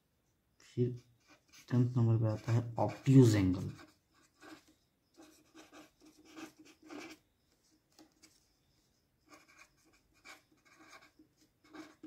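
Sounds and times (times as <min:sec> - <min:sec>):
pen writing on paper: 0:01.2 - 0:07.2, 0:09.2 - 0:12.0.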